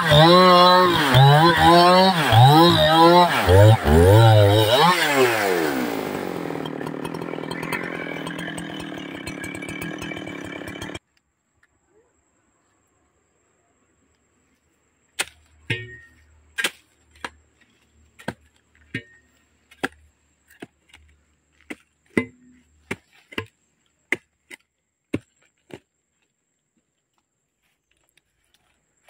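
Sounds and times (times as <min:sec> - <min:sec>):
metal tool chopping into soil: 0:15.2 - 0:17.4, 0:18.2 - 0:25.8.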